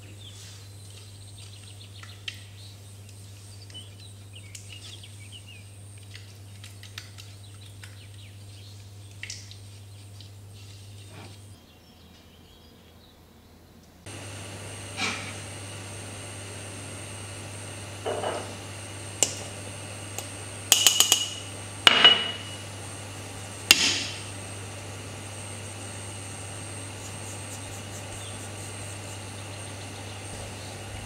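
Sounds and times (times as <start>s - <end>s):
steady low hum: 12.3s - 31.0s.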